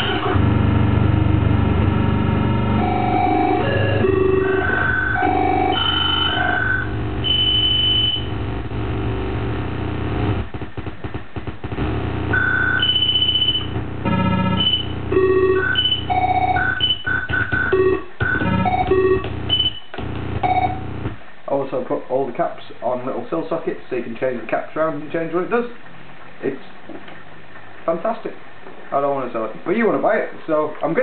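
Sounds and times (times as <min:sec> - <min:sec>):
buzzy electronic synth tones: 0:00.0 - 0:21.2.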